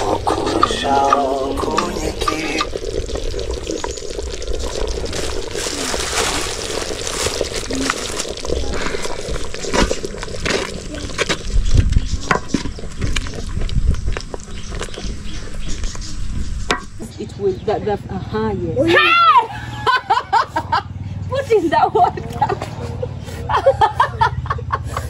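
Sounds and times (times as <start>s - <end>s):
water sloshing and trickling: 0.0s - 16.7s.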